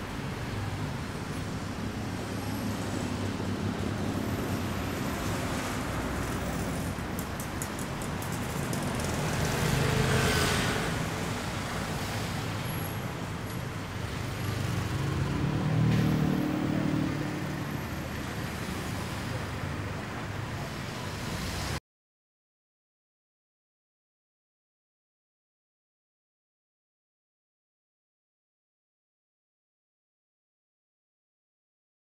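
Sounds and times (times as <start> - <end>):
traffic engines and tyres: 0.0 - 21.8
car passing close: 2.4 - 12.6, 14.2 - 19.6.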